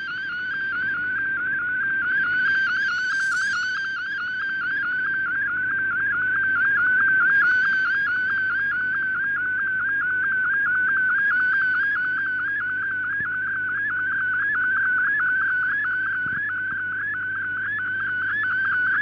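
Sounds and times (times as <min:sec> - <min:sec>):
warbling radio data tone: 0:02.3 - 0:05.2.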